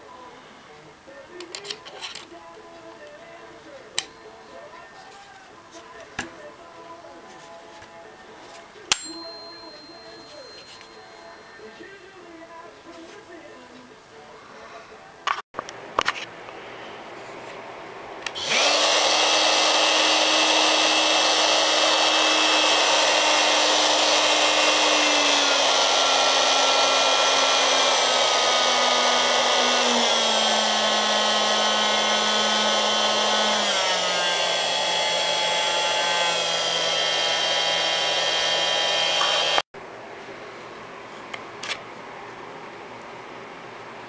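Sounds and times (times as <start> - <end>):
oscillating multi-tool buzzing: 18.3 - 39.6.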